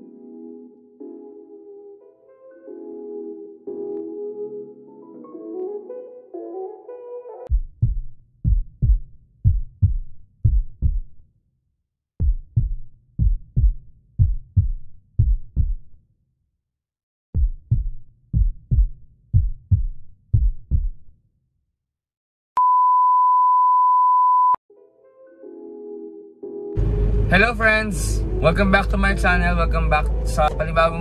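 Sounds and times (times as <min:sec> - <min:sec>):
steady high beep: 0:22.6 - 0:24.6.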